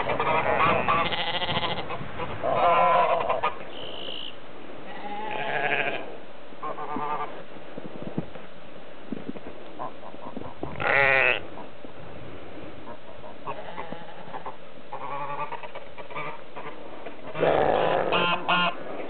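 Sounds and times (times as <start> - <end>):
sheep bleating: 0.5 - 1.9, 4.9 - 6.2, 10.8 - 11.4.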